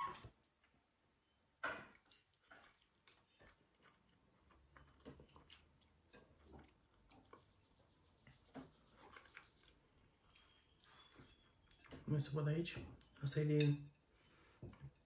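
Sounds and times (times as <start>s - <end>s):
chewing: 1.9s - 12.1s.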